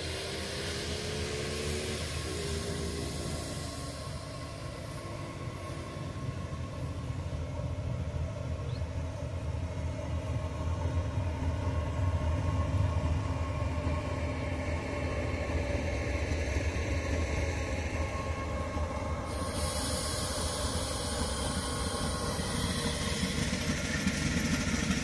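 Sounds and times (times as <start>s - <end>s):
diesel locomotive engine rumble: 0.0s - 25.0s
thin steady whine: 0.0s - 25.0s.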